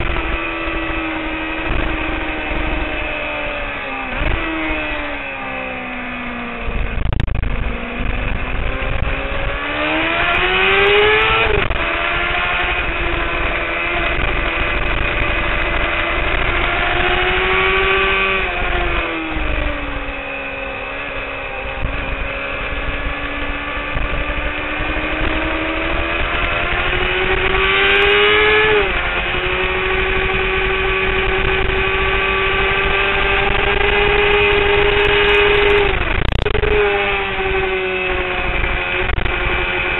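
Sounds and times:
motorcycle engine revving: 0.0 - 39.9.

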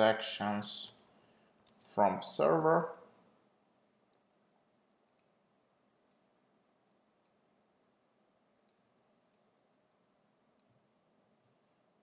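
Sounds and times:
keyboard typing clicks: 0.8 - 1.9, 4.9 - 5.4, 6.0 - 6.5, 8.6 - 9.5, 11.4 - 11.8.

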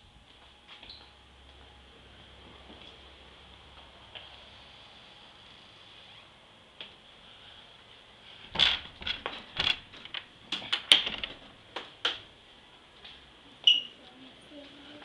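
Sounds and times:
sharp clicks and knocks: 8.6 - 12.2.

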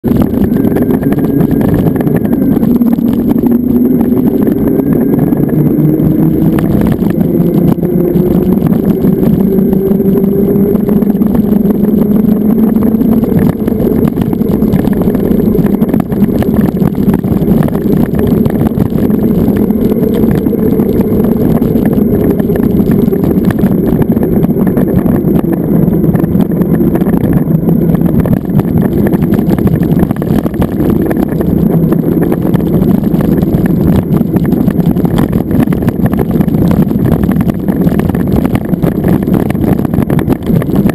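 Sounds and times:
wind and road rumble: 0.0 - 40.9
electric motor whine: 0.1 - 40.9.

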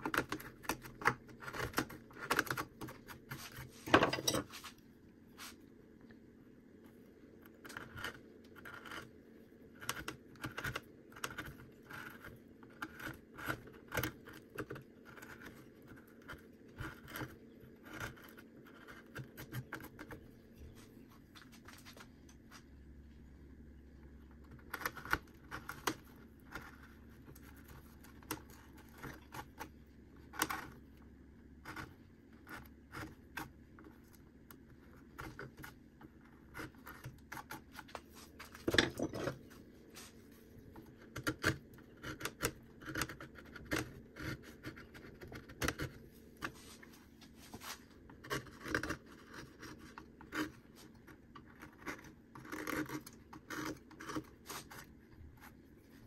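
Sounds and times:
carving blade scraping bark: 41.0 - 46.8, 47.6 - 55.6.

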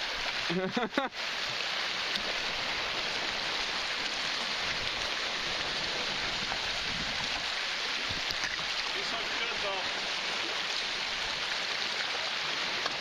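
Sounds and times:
waves splashing over rocks: 0.0 - 13.0.

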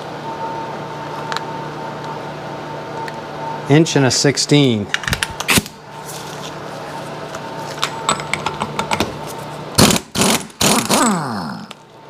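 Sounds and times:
impact wrench hammering: 9.8 - 11.2.

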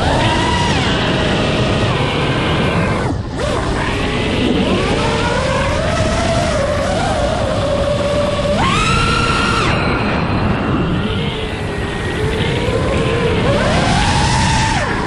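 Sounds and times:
quadcopter motors whining: 0.0 - 15.0
rush of air: 8.4 - 15.0.

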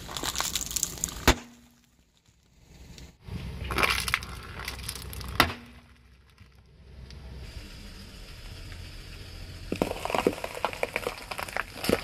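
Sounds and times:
foil snack packets bursting: 0.0 - 1.2
crackling crunching of contents: 0.0 - 6.7, 9.7 - 12.0.

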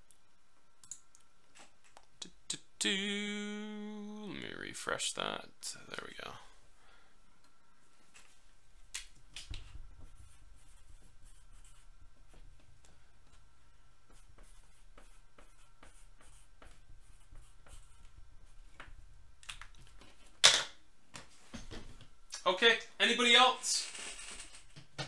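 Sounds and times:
steady low hum: 0.0 - 23.0
hands clicking and rubbing at desk: 8.1 - 10.1.

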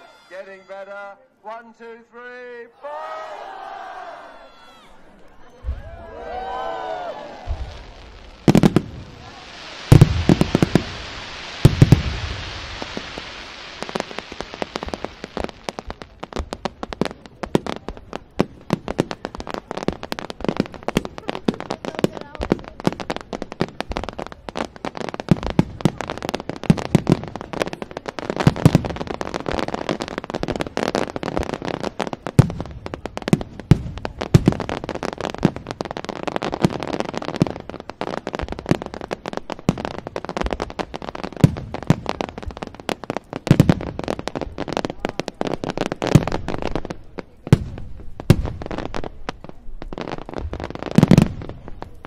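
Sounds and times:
fireworks crackling: 0.0 - 52.0
fireworks shells bursting: 7.4 - 17.2.

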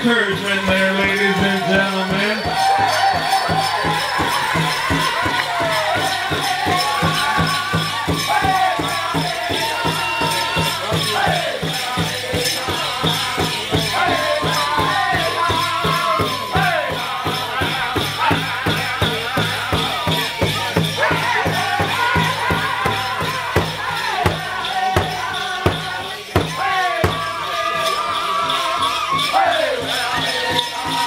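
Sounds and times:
high voices singing: 0.0 - 31.0
steady drumbeat: 0.0 - 31.0.

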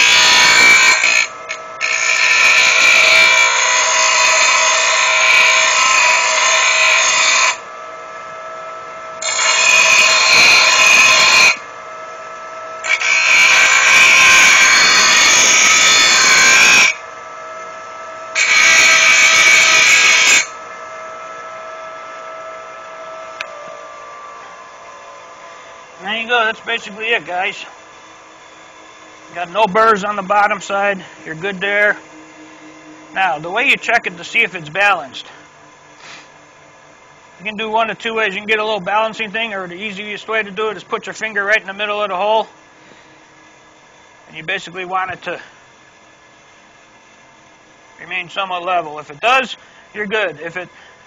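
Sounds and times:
grinder wheel rasping on metal: 0.0 - 7.7, 9.2 - 11.7, 12.8 - 17.0, 18.3 - 20.8, 22.9 - 36.3
grinder motor humming: 0.0 - 51.0.

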